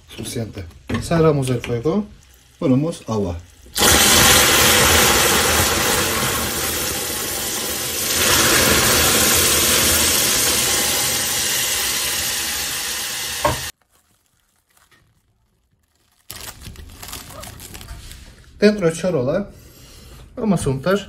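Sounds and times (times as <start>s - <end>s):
water hissing in hot sugar: 2.1s - 13.8s.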